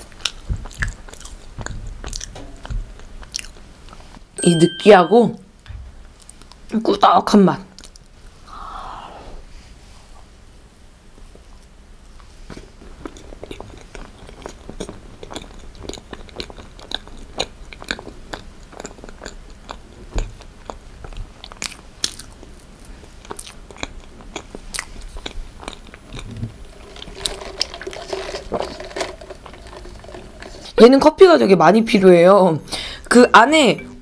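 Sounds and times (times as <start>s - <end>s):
chewing cake: 0.0s - 4.2s, 12.2s - 30.8s.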